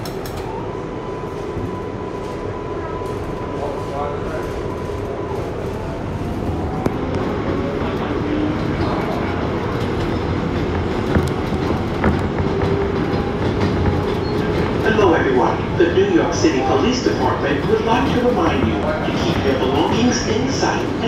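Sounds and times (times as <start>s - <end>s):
sharp clicks of train wheels: 0.0s - 0.5s, 8.8s - 15.0s
train wheels rumbling on rail: 0.0s - 21.0s.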